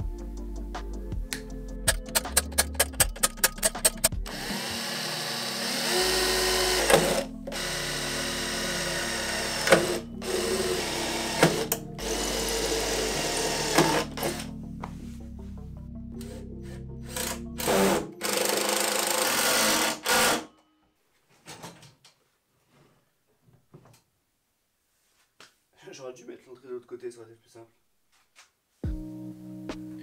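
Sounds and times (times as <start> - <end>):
background music: 0.0 - 20.8, 28.8 - 30.0
sharp clicks: 1.3 - 4.3
cordless drill whirring: 4.3 - 14.5, 16.3 - 20.5.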